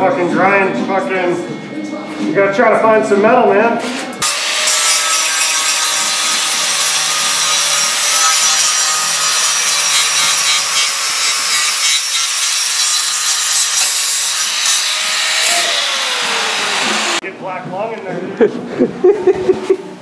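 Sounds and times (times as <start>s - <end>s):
grinder rasping against filler: 4.2s - 17.2s.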